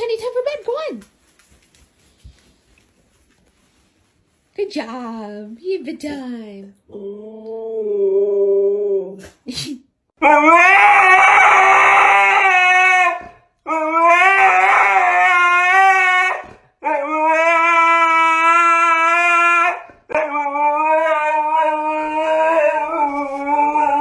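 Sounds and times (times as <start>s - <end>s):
dogs howling: 10.2s - 24.0s.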